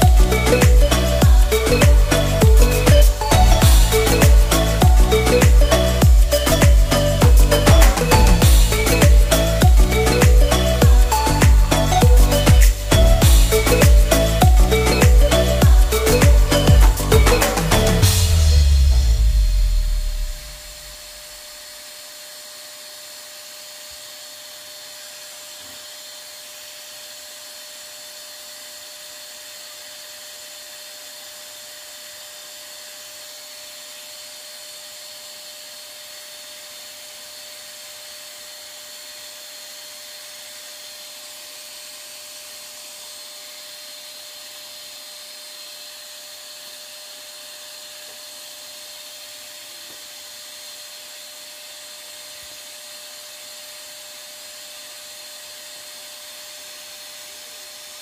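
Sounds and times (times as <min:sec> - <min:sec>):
handheld vacuum cleaner running: 0:00.0 - 0:58.0.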